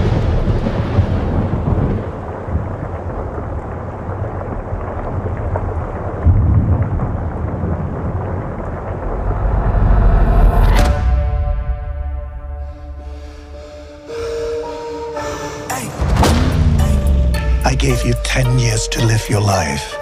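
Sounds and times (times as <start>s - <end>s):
thunder rumbling: 0.0s - 20.0s
heavy rain hissing: 12.6s - 20.0s.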